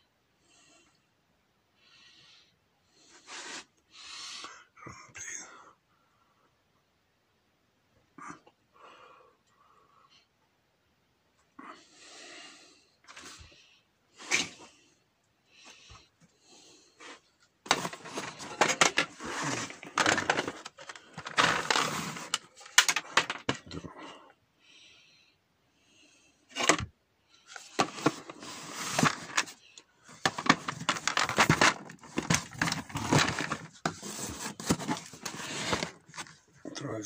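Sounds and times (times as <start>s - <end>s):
rustling: 17.0s - 23.6s.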